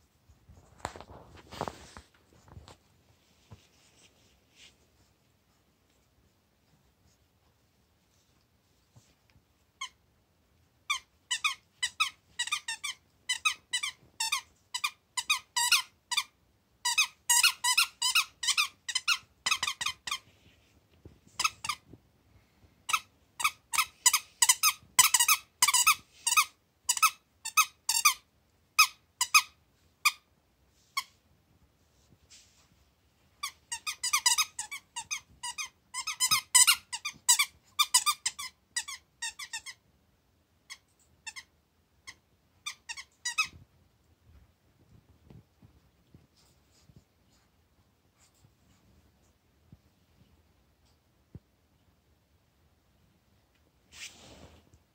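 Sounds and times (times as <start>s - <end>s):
dog toy squeaking: 10.9s - 20.2s, 22.9s - 28.2s, 28.8s - 30.2s, 33.4s - 39.8s, 40.7s - 43.6s.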